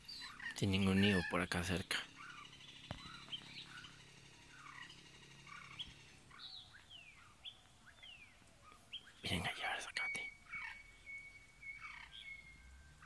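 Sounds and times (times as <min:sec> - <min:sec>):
short bird chirps: 0:08.0 - 0:13.0.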